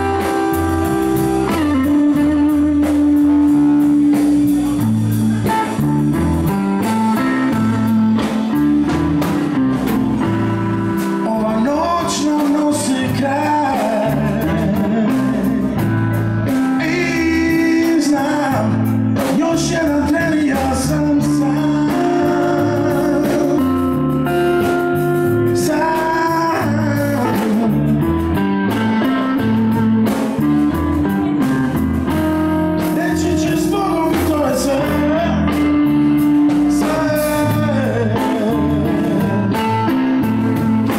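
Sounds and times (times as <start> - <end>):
drum kit: 0.0 - 40.9
electric bass: 0.0 - 40.9
electric guitar: 0.0 - 40.9
man singing: 0.0 - 40.9.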